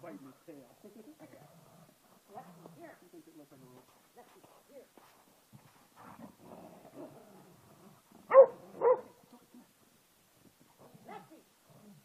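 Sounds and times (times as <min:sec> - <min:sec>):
dog barking: 0:08.3 - 0:09.2.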